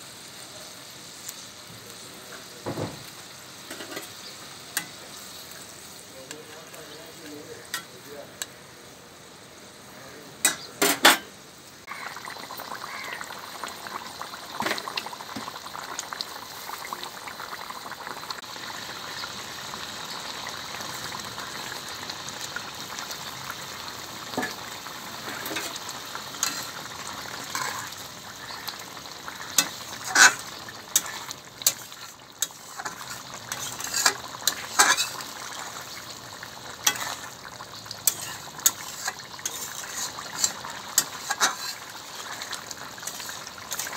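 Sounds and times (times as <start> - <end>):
curry sizzling and bubbling: 0.0 - 43.9
spatula scraping a pan: 3.6 - 5.0, 24.3 - 36.0, 36.8 - 37.4, 38.0 - 43.9.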